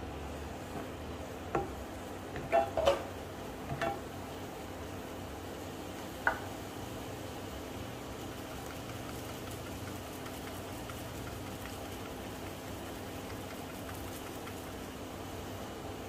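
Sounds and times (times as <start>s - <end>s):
food simmering in frying pan: 0.2s - 16.0s.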